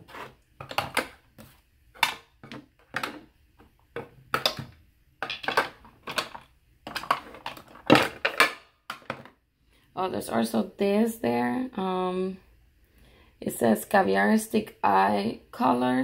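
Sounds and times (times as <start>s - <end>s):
makeup items tapping acrylic drawer: 4.0s - 9.3s.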